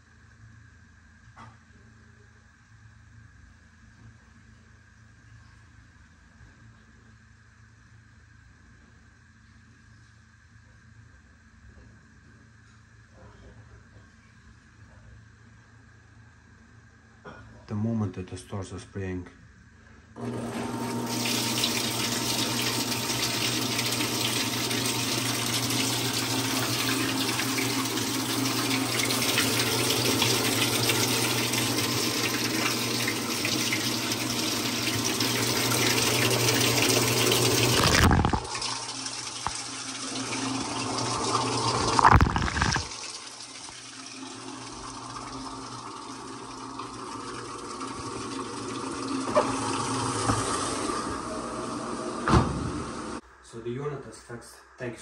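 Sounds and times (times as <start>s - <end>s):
water rushing into washing machine: 20.2s - 53.2s.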